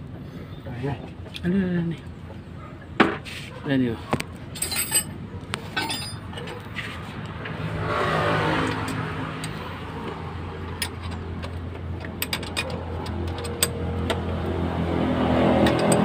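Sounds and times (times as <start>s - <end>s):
metallic clicks of hand tools: 15.6s - 16.0s.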